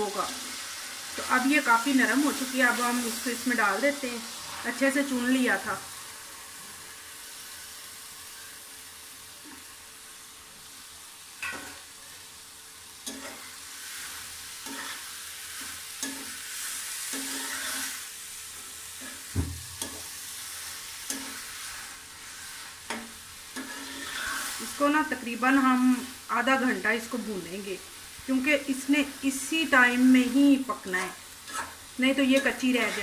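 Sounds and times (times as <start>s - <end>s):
lentils sizzling in oil: 0.0s - 33.0s
metal spatula scraping pot: 17.1s - 18.0s, 23.6s - 24.6s, 31.0s - 33.0s.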